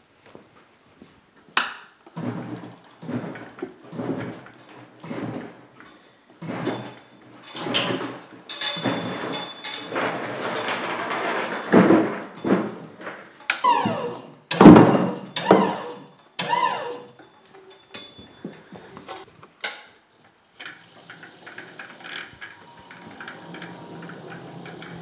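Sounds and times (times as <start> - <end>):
metal clanks and knocks: 2.1 - 19.9, 20.6 - 25.0
faint squeak: 13.6 - 19.2.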